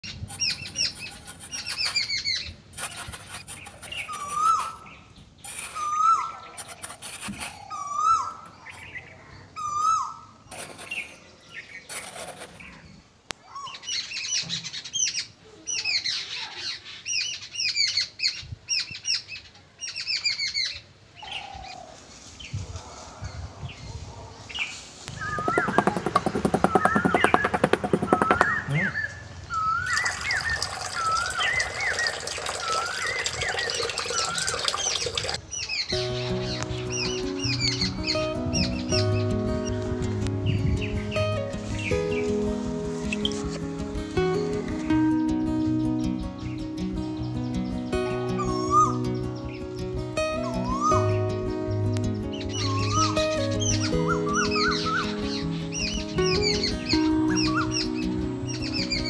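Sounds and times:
birds chirping: 0.0s - 59.0s
trowel scraping sand: 0.1s - 7.7s, 10.5s - 12.9s, 25.0s - 29.1s.

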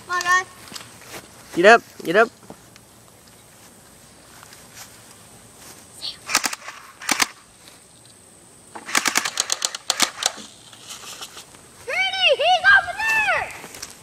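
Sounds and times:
airsoft guns firing: 6.3s - 7.4s, 8.8s - 10.5s.

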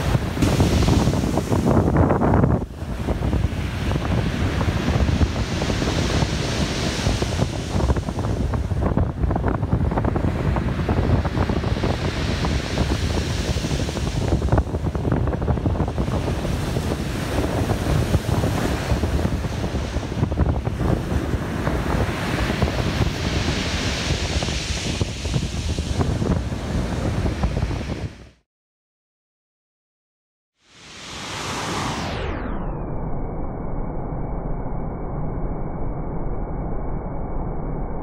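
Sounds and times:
waves washing: 0.0s - 28.2s, 30.8s - 32.1s
wind buffeting microphone: 0.0s - 28.4s.

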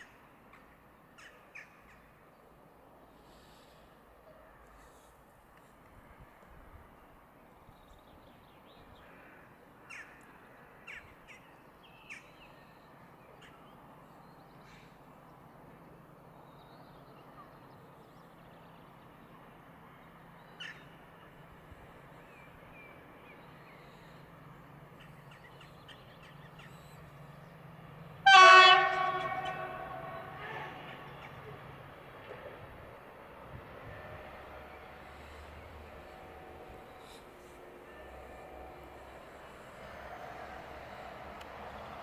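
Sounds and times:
diesel locomotive engine hum: 0.0s - 42.0s
locomotive horn blast: 28.2s - 31.2s.

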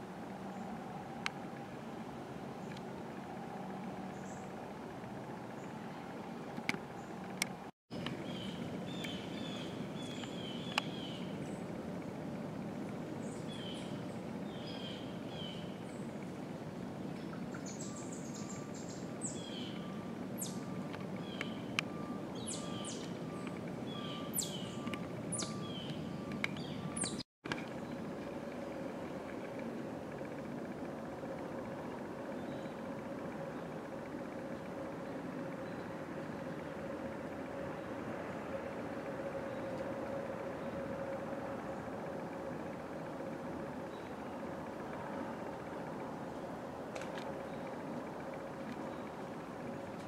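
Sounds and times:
steady background hiss: 0.0s - 50.0s
birds chirping: 5.4s - 11.7s, 17.0s - 28.1s.

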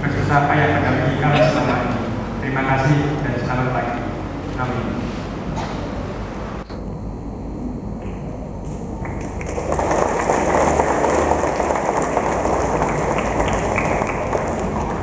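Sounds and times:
congregation applauding: 9.0s - 15.0s.

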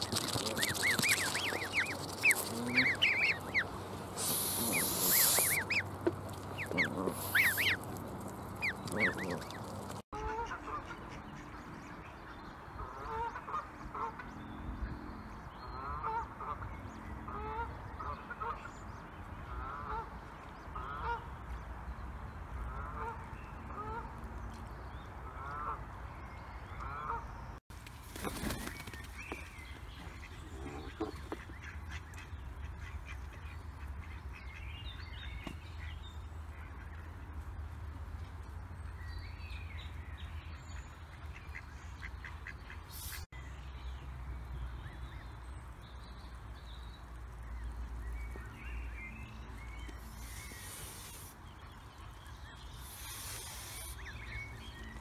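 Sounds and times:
loud rustling burst: 0.0s - 10.0s
geese honking: 0.1s - 8.0s, 8.6s - 11.0s.

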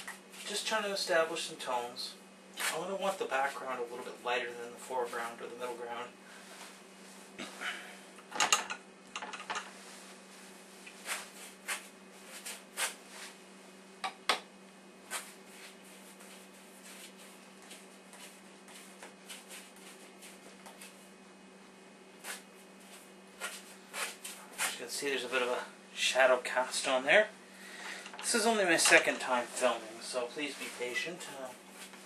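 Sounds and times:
steady low hum: 0.0s - 32.0s
paintbrush strokes on canvas: 9.7s - 13.4s, 15.1s - 21.1s, 29.3s - 32.0s.

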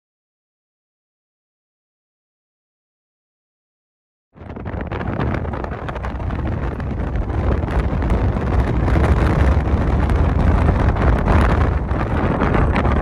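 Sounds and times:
wind buffeting microphone: 4.4s - 13.0s.

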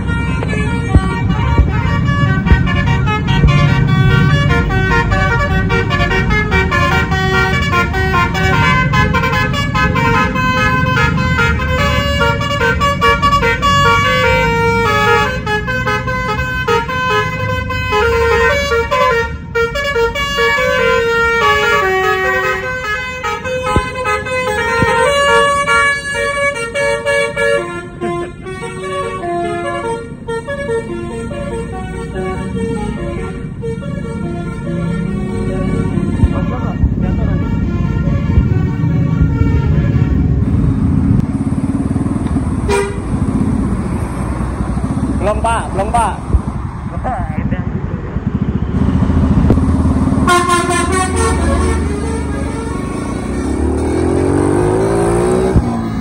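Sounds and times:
bus air horn melody: 0.0s - 40.6s, 42.6s - 43.2s, 50.1s - 56.0s
bus engine rumbling: 0.0s - 56.0s.

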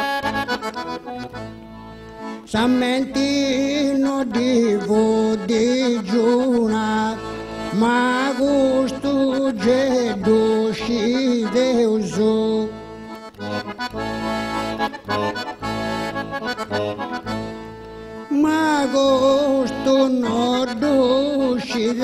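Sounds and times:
accordion chords: 0.0s - 22.0s
man singing: 2.4s - 13.8s, 15.0s - 15.6s, 16.6s - 17.2s, 18.3s - 22.0s.

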